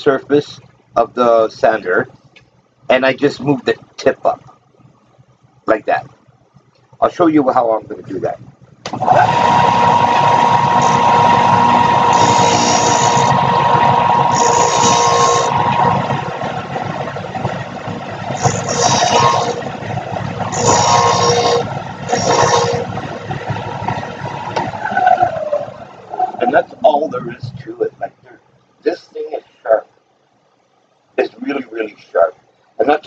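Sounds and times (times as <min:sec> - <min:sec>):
sander motor humming: 0:08.9 - 0:26.7
drill bit grinding on sander: 0:09.0 - 0:24.7.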